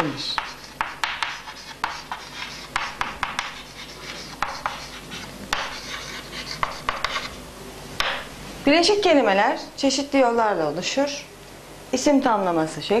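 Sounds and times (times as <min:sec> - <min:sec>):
chalk tapping: 0:00.0 - 0:07.4
chalk scratching on chalkboard: 0:00.2 - 0:07.4.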